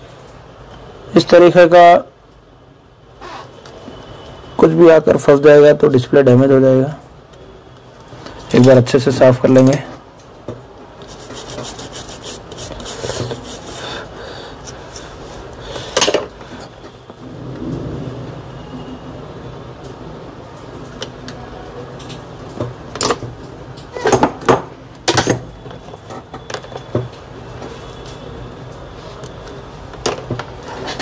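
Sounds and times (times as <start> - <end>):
hand tools scraping circuit board: 11.0 - 14.0, 30.6 - 31.0.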